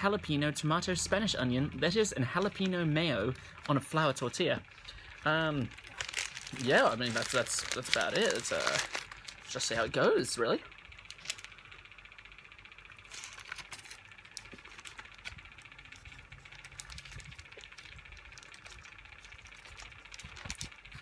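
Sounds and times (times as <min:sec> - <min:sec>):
steady low hum: 0:00.0 - 0:21.0
wrapper crinkling: 0:02.4 - 0:10.0, 0:11.0 - 0:11.5, 0:13.1 - 0:21.0.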